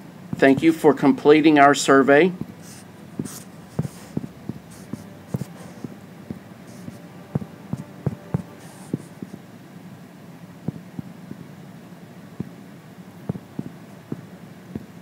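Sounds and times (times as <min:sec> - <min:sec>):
fingertips tapping glass screen: 0:02.4 - 0:09.4.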